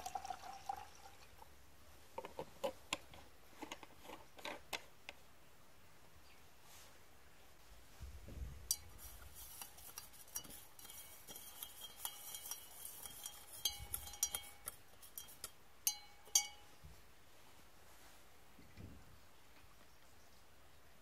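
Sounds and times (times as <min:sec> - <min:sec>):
rod clinking against glass beaker: 0:08.7 - 0:16.7.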